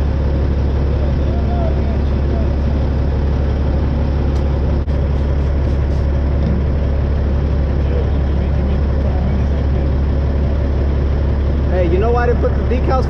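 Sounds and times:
diesel truck engine idling: 0.0s - 13.0s.

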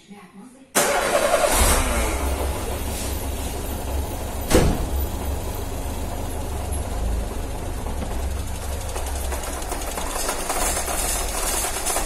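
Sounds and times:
engine ticking: 0.8s - 12.0s
car engine idling rough: 1.5s - 12.0s
loud thump: 4.5s - 5.0s.

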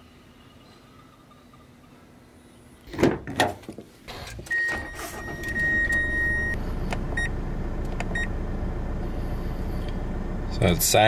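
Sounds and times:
car engine starting and idling: 4.1s - 11.0s
car warning chime: 4.5s - 7.4s, 8.1s - 8.3s.

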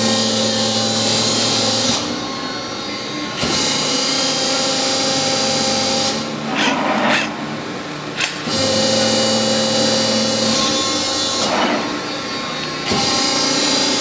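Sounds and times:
hydraulic rushing noise: 5.9s - 8.6s.

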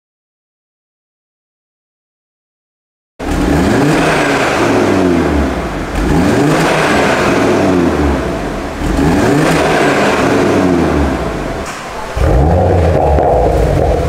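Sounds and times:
car engine revving: 3.2s - 14.0s.

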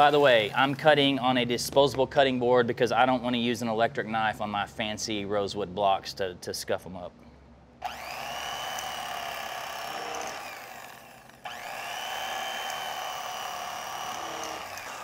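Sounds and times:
electric knife motor whine: 7.8s - 15.0s.

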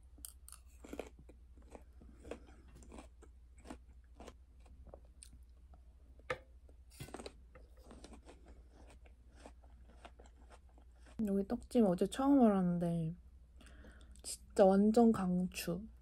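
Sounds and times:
chewing crisp fruit: 0.2s - 5.6s, 7.0s - 11.3s.

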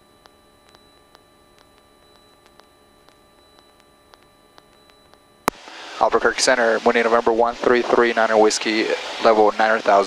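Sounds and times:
high electrical whine: 0.0s - 10.0s
light ticks: 0.2s - 5.2s.

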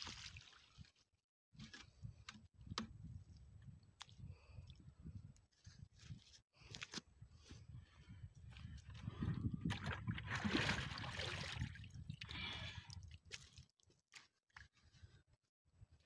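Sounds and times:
water pouring into a muddy pool: 0.0s - 1.0s, 9.8s - 13.8s.

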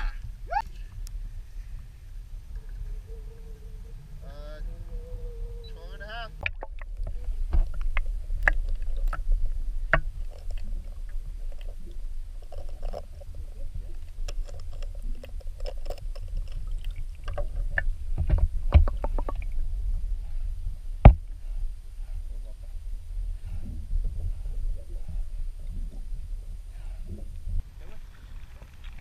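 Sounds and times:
muffled underwater rumble: 0.0s - 29.0s.

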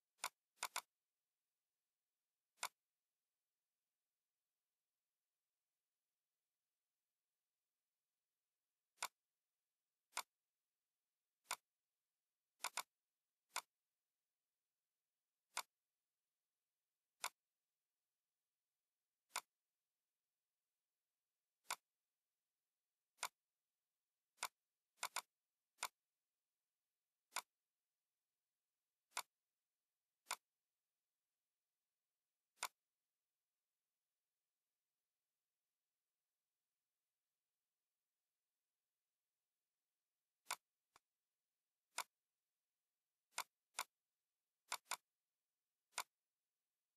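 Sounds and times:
computer mouse clicks: 0.2s - 1.0s, 2.5s - 2.8s, 8.9s - 9.2s, 10.1s - 10.4s, 11.4s - 11.7s, 12.6s - 13.8s, 15.5s - 15.8s, 17.2s - 17.5s, 19.3s - 19.7s, 21.6s - 21.9s, 23.1s - 23.4s, 24.3s - 26.0s, 27.3s - 27.6s, 29.0s - 29.4s, 30.2s - 30.6s, 32.5s - 32.9s, 40.4s - 41.1s, 41.9s - 42.2s, 43.3s - 45.2s, 45.8s - 46.3s.

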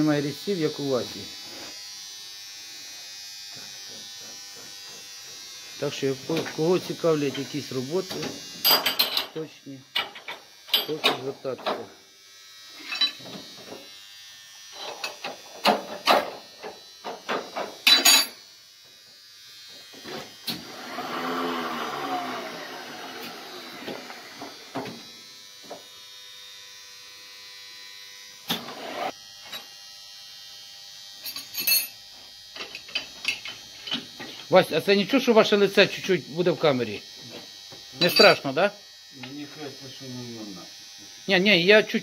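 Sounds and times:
metal tools clinking: 8.6s - 9.4s, 17.8s - 18.4s, 38.0s - 38.4s.

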